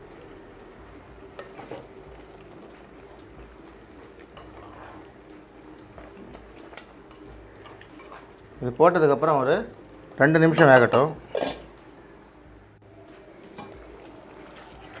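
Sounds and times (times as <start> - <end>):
faint steady hum: 0.0 - 8.8
spatula stirring thick food in pot: 1.0 - 8.6, 13.7 - 15.0.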